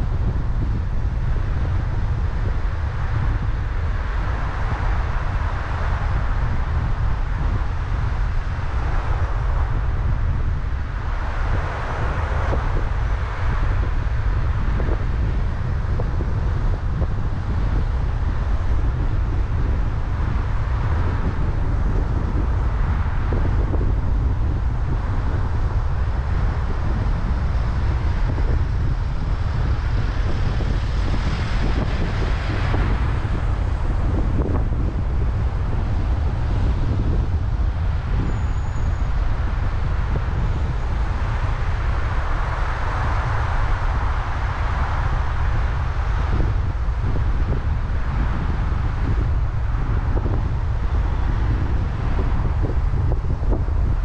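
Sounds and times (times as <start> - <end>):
car road and wind noise: 0.0 - 54.0
passing traffic: 0.0 - 54.0.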